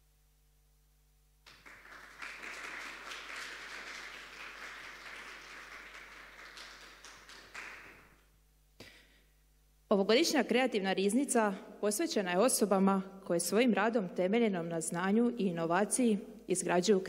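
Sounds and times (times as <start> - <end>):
audience applauding: 1.5 - 8.2.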